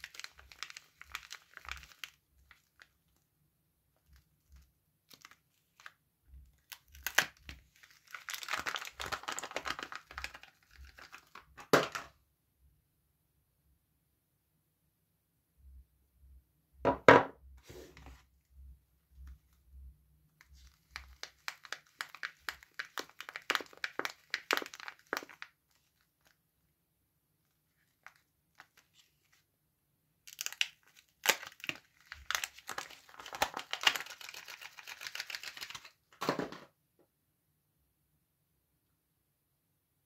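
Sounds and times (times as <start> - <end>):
paper wrapper crinkling and tearing: 0.0 - 3.2, 4.0 - 11.6, 20.4 - 26.4, 27.4 - 29.4, 30.3 - 36.0
soap bar knocking on wooden table: 16.9 - 17.4.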